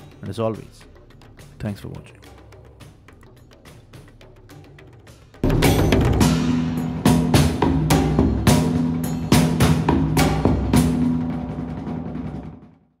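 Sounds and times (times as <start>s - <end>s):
heavy drum strikes: 5.4s - 12.8s.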